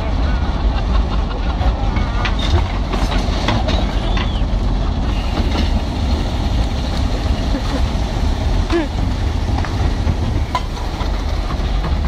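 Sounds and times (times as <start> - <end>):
diesel engine idling: 3.9 - 12.0.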